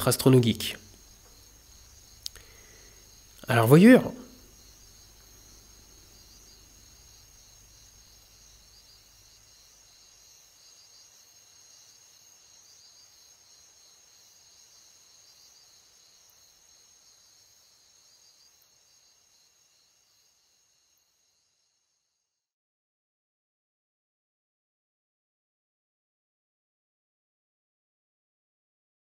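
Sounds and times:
faint high-pitched ringing and hiss: 0.0s - 22.5s.

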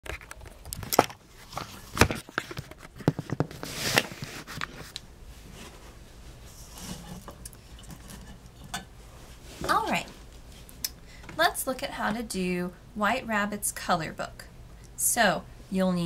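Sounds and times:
handling knocks and rustles: 0.0s - 10.7s.

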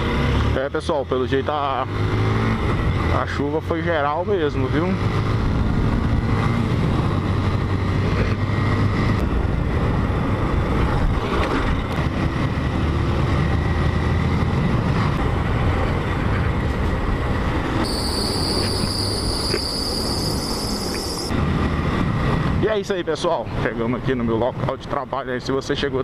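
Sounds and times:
road noise: 0.0s - 26.0s
wind: 0.0s - 26.0s
steady high whine: 17.8s - 21.3s.

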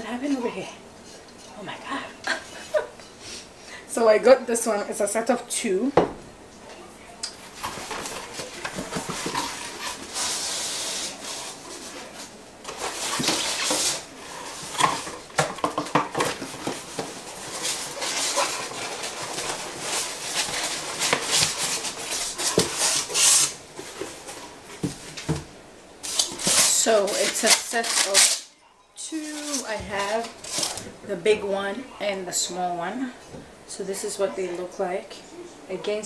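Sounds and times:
cardboard box rustling and scraping: 7.5s - 15.2s, 16.1s - 25.4s.

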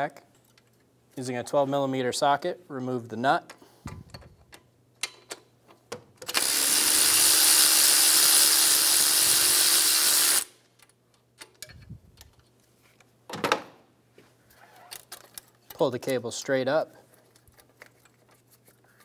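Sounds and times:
power ratchet spinning: 6.3s - 10.6s.

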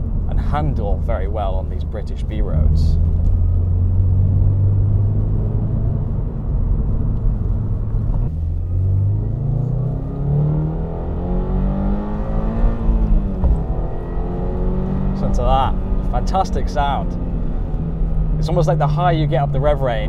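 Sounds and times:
car engine accelerating: 0.0s - 20.0s.

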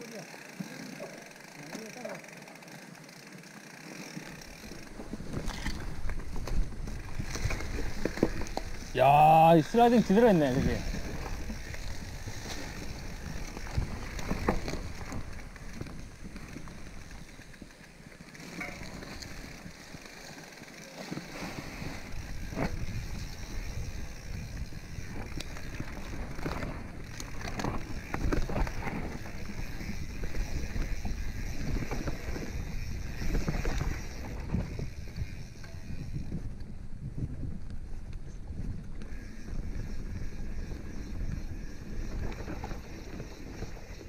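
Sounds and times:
bike tyres rolling through leaves: 0.0s - 44.0s
bike knocks and rattles: 10.8s - 20.1s, 20.9s - 36.5s.

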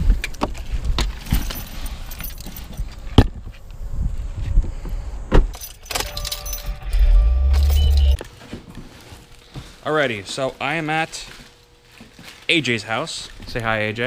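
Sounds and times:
bag rustling and clattering: 0.6s - 3.0s
keys jangling: 1.2s - 3.0s, 5.6s - 8.2s.

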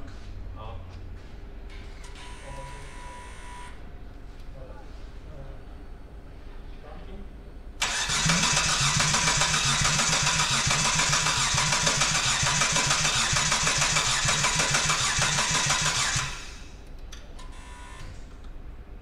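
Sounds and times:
engine cranking on starter motor: 7.8s - 16.8s.

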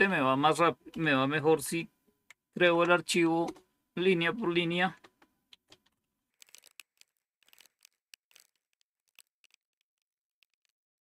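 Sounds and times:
faint keyboard typing: 5.0s - 10.8s.

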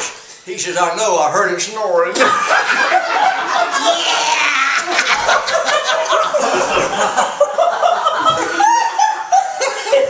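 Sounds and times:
group of people laughing: 2.2s - 10.0s.

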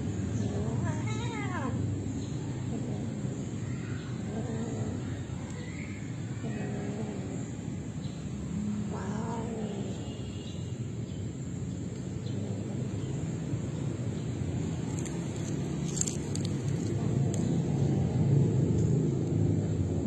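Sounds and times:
cats yowling: 2.6s - 7.8s, 8.5s - 10.3s.

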